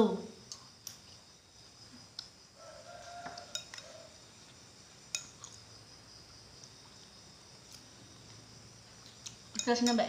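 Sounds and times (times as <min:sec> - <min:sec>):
spoon clinking on glass bowl: 0:03.3 - 0:04.1.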